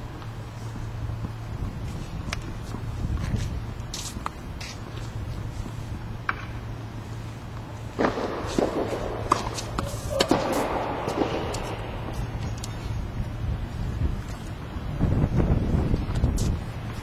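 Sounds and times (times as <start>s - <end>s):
low background rumble: 0.0s - 17.0s
tennis ball bouncing on court: 6.2s - 6.6s, 8.0s - 12.8s
tennis ball hit with racquets: 6.2s - 6.6s, 8.0s - 12.9s.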